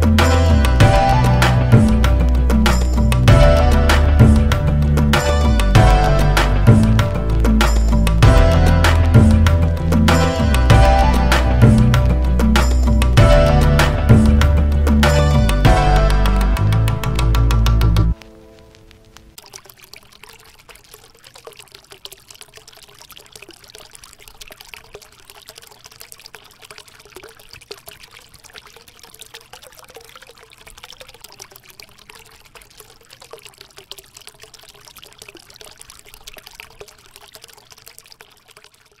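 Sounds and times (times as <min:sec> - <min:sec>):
water trickling and bubbling: 0:00.0 - 0:39.0.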